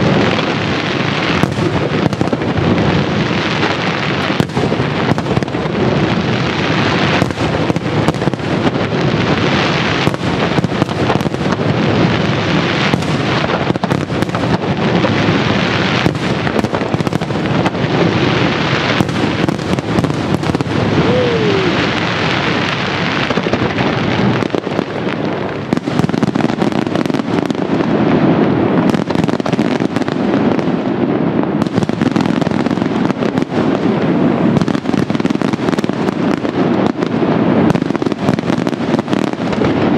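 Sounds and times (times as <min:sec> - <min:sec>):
fireworks bursts and bangs: 0:00.0 - 0:39.9.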